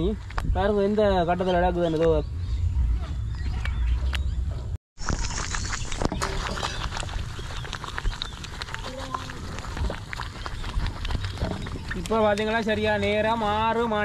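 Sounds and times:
thick mixture bubbling in a pot: 5.1 - 13.7.

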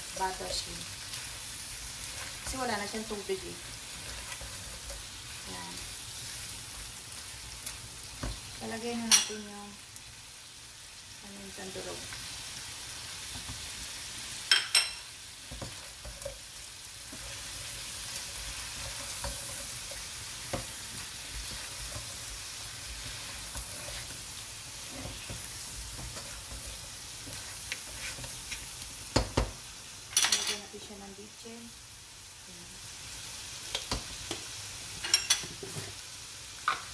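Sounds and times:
shrimp sizzling in butter: 0.0 - 36.9
spatula scraping pot: 17.1 - 29.3.

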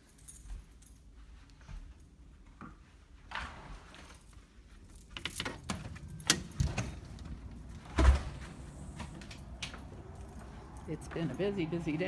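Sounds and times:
door latch and handle clicking: 5.2 - 7.3
door shutting with heavy thump: 7.8 - 8.7.

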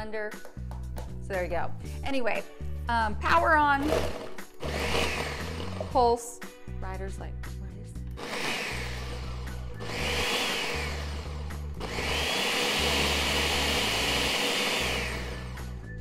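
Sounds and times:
blender motor whining: 3.8 - 6.0, 8.2 - 16.0.

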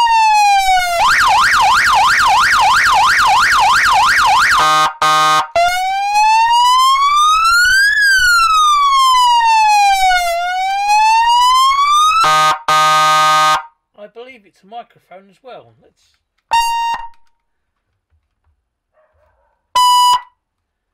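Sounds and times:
buzzing siren horn tone: 0.0 - 13.7, 16.5 - 17.2, 19.8 - 20.3
siren wail: 0.0 - 13.7, 16.5 - 17.1, 19.8 - 20.3.

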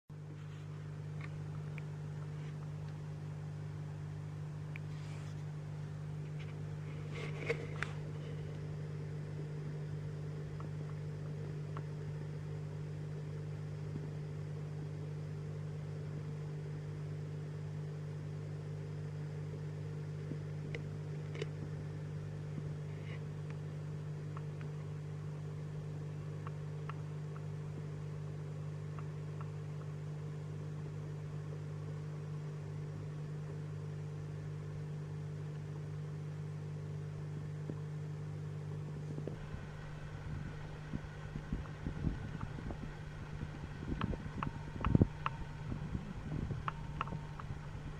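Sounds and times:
low mechanical hum: 0.1 - 47.9
light clicks: 39.2 - 47.9.

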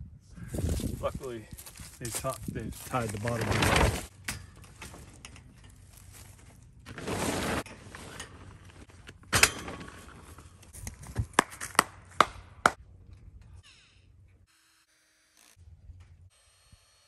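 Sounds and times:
tarp rustling: 0.6 - 4.1, 4.7 - 9.0.

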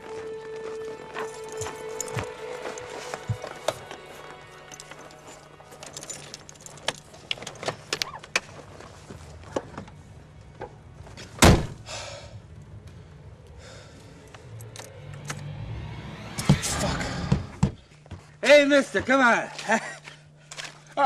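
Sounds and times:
keys jangling: 1.0 - 8.0.

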